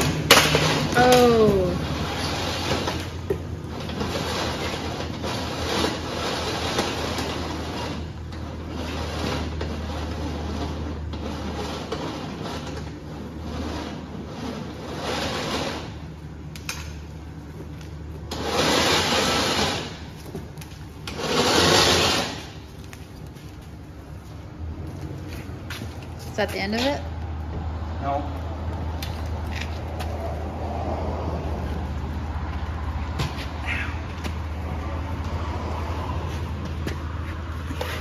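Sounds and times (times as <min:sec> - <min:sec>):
rope scraping: 0:00.0 - 0:27.1, 0:28.1 - 0:38.0
rope hissing rasps: 0:21.1 - 0:22.6.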